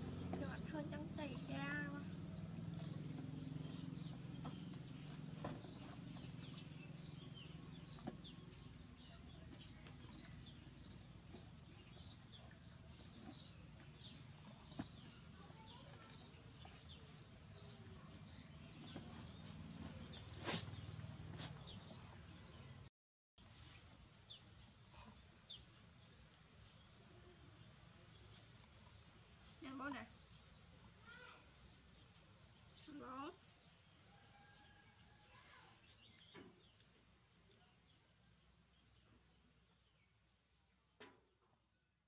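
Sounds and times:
small bird chirping: 0.1 - 22.8.

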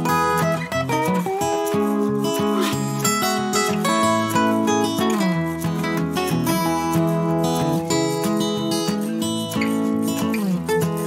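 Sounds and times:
acoustic guitar music: 0.0 - 11.0.

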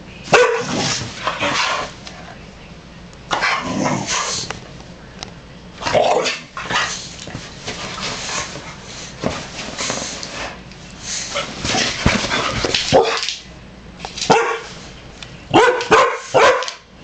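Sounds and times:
dogs barking and yipping: 15.5 - 16.8.

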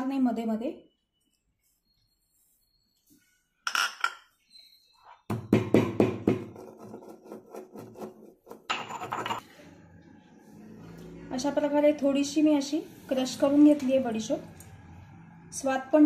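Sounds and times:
stone pestle pounding in mortar: 5.3 - 8.2
pestle grinding and scraping: 6.2 - 9.4.

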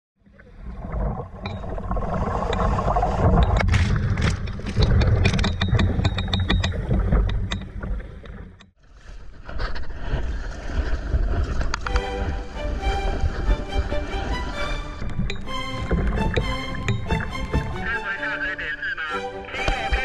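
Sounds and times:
sharp knocks and scrapes: 2.4 - 8.7, 15.0 - 17.9.

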